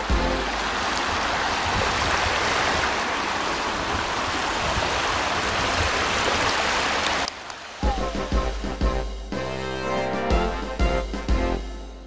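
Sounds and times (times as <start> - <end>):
small waves washing ashore: 0.0 - 8.7.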